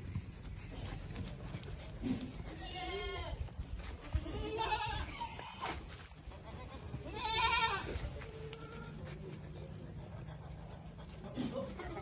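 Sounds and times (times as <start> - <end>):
goats bleating: 2.2 - 9.2, 11.3 - 12.0.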